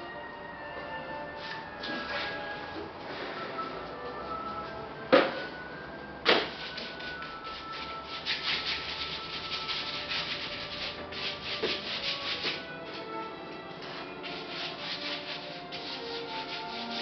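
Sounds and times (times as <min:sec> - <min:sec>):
paint scrubbed onto canvas: 0:06.5 - 0:12.6, 0:13.9 - 0:17.0.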